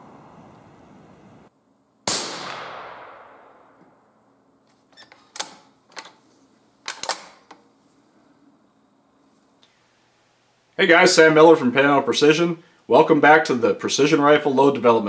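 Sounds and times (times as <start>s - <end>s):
gunshot bang: 2.1s - 3.8s
rifle bolt metallic clacks: 6.8s - 7.6s.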